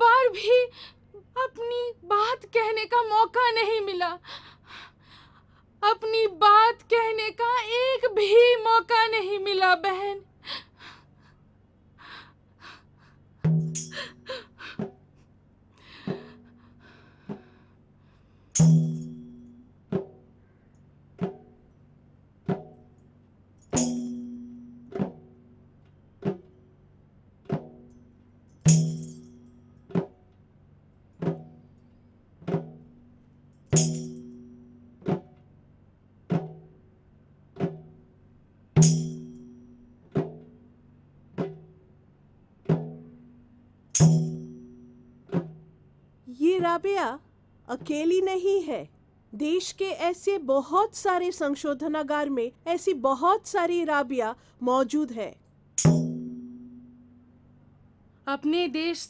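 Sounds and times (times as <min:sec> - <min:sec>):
hand drum strokes: 0:16.0 - 0:16.6, 0:55.8 - 0:57.3
jingles: 0:27.8 - 0:29.9.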